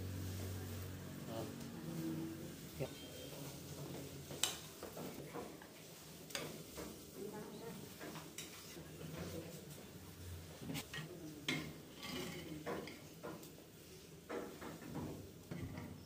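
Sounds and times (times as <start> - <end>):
kitchen background noise: 0.0 - 16.0
metal spoon scraping ceramic plates: 11.9 - 12.7.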